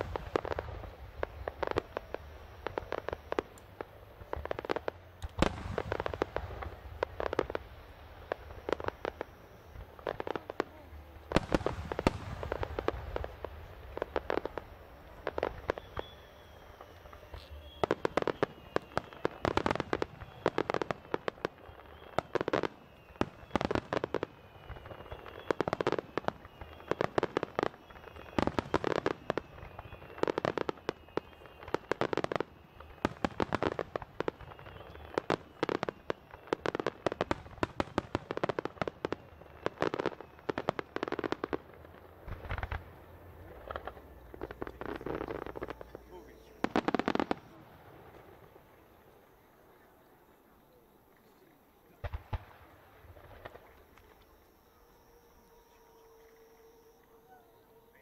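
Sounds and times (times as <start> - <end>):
fireworks bangs: 0.0 - 49.8, 51.9 - 58.0
deep firework boom: 4.3 - 7.6, 8.2 - 24.0, 40.7 - 48.7.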